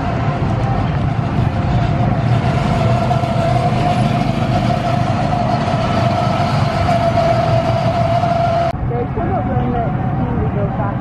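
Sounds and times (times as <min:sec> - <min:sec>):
go-kart engine running: 0:00.0 - 0:08.7.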